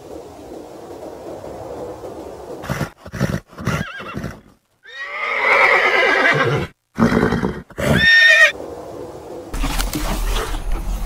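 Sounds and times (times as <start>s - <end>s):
horse neighing: 2.6s - 8.6s.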